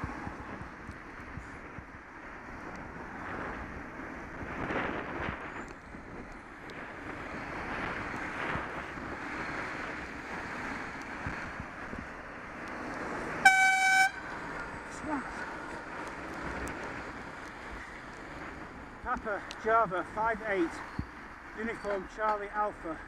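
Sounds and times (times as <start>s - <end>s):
wind buffeting microphone: 0.0s - 21.7s
passing motor traffic: 0.0s - 23.0s
horn steady note: 13.4s - 14.3s.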